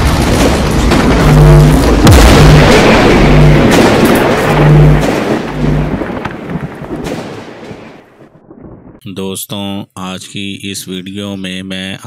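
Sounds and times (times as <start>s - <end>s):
heavy rumbling boom: 0.0s - 9.0s
crackling noise: 0.0s - 11.1s
low held notes: 1.0s - 6.4s.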